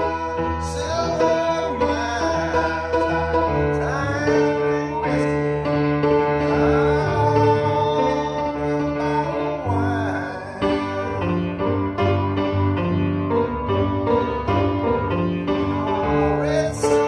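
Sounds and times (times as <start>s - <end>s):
man singing: 0.0s - 12.2s, 14.8s - 17.0s
piano playing: 0.0s - 17.0s.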